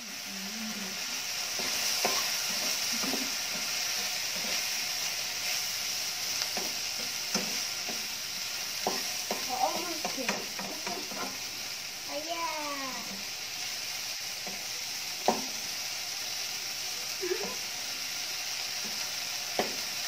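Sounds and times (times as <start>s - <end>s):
mushrooms sizzling in a frying pan: 0.0s - 20.0s
spatula scraping and knocking pan: 1.5s - 4.8s, 6.4s - 8.1s, 8.8s - 11.5s.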